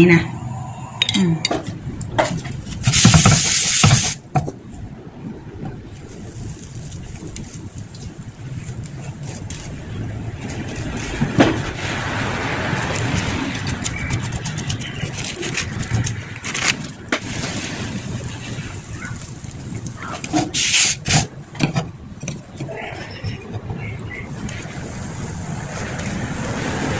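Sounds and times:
steady rushing noise: 0.0 - 26.9
batter brushed on griddle: 2.6 - 4.2, 5.9 - 15.8, 17.2 - 21.3.

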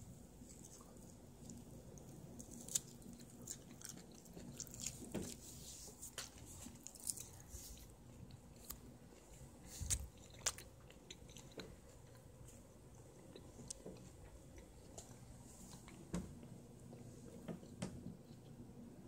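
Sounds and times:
cat chewing: 0.4 - 5.7.

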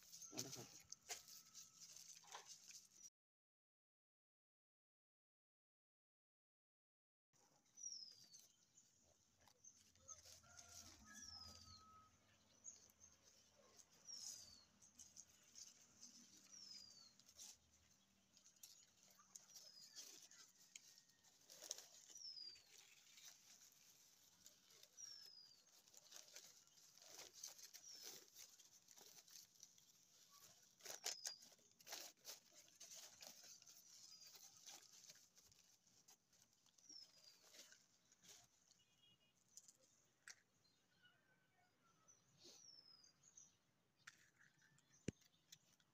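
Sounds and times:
newspaper crinkling and rustling: 0.0 - 3.0, 13.0 - 38.8.

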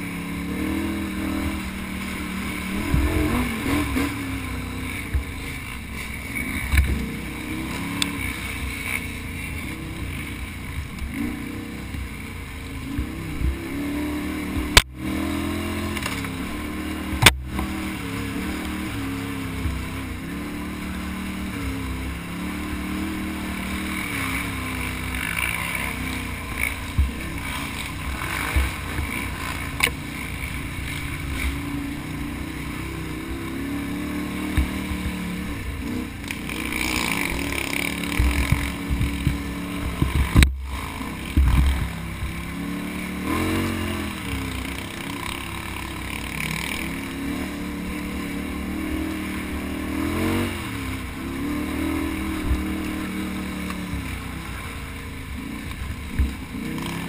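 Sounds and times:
atv engine revving: 0.0 - 57.0
thumps on microphone: 38.2 - 40.7, 41.3 - 42.4.

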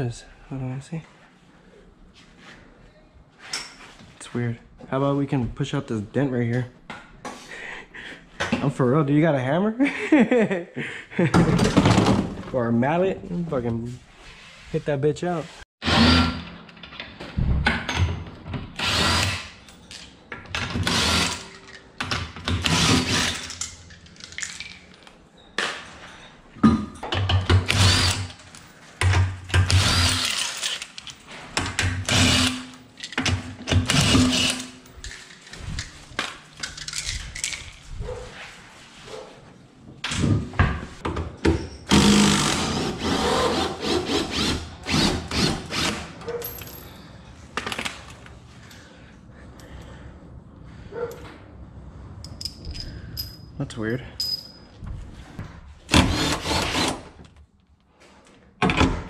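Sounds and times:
impact wrench bursts: 20.7 - 21.6, 22.5 - 23.6, 27.5 - 28.4, 29.5 - 30.8, 31.8 - 32.8, 33.7 - 34.8.

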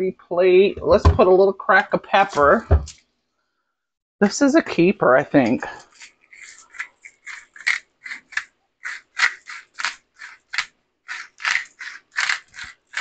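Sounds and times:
pepper mill grinding: 5.8 - 13.0.

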